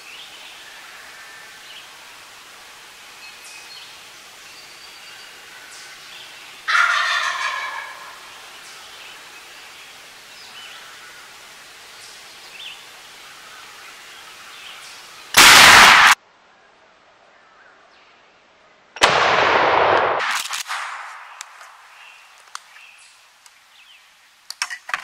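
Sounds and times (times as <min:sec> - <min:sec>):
shotgun blasts: 0:15.4 - 0:16.2, 0:19.0 - 0:21.4.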